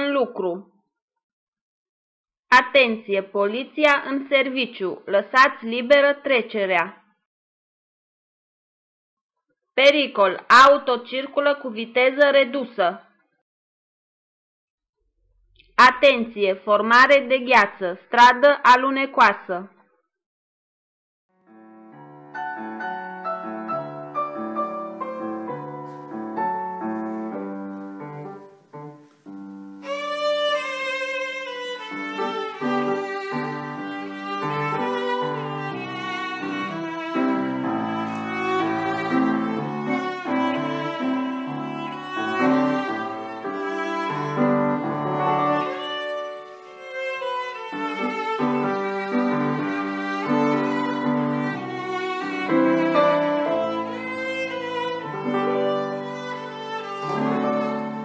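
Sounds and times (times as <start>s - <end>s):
slow piano and strings: 21.6s - 58.0s
violin melody: 22.0s - 58.0s.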